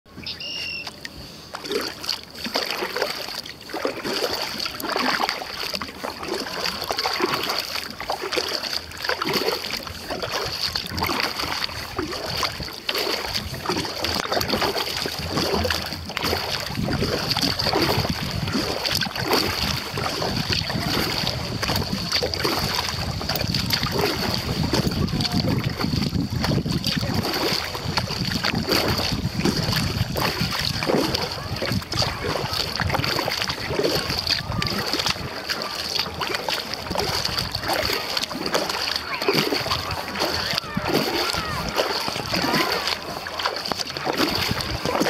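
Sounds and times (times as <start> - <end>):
water splashing against kayak: 0.1 - 45.0
wind rumble on microphone: 9.2 - 38.6, 39.3 - 45.0.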